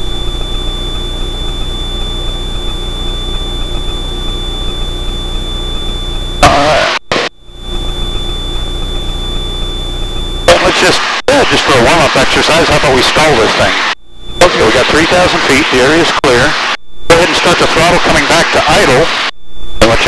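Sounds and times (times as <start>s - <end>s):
high-pitched whine: 0.0s - 20.0s.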